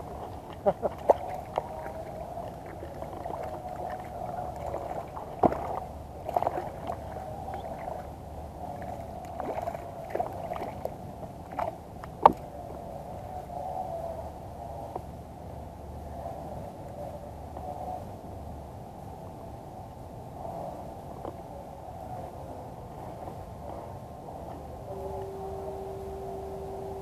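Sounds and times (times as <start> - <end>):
fish thrashing in water: 0.0 - 12.5
steady hum: 0.0 - 27.0.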